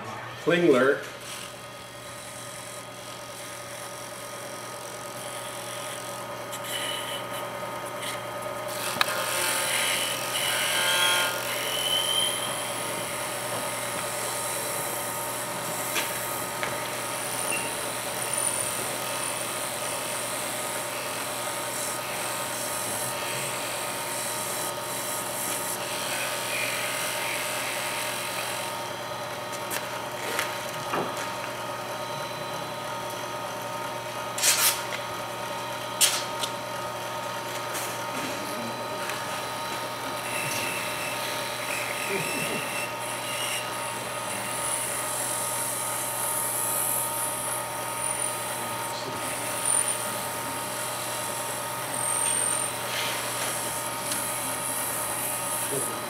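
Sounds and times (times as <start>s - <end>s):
wood lathe motor whine: 0.0s - 56.0s
tool scraping spinning wood: 0.8s - 32.4s, 37.2s - 56.0s
short squeals: 11.6s - 12.7s, 17.4s - 17.8s.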